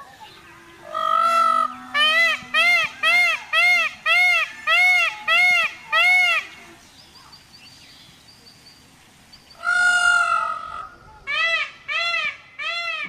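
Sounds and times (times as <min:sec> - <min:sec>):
peacock calling: 0:00.0 - 0:07.4, 0:09.5 - 0:13.0.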